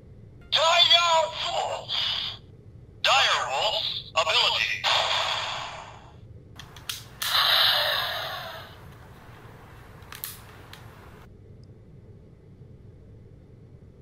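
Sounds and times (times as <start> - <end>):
plastic toy clicks and snaps: 6.6 - 7.4, 10.0 - 10.8.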